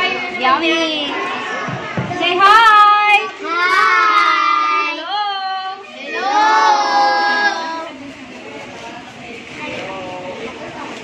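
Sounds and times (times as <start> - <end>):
children singing: 3.4 - 5.2, 6.0 - 7.9.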